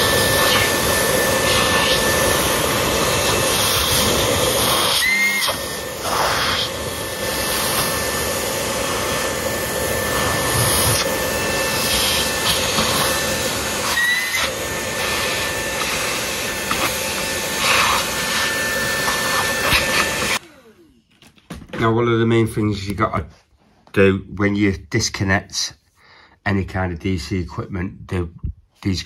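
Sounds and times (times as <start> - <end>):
vacuum cleaner running: 0.0 - 21.1.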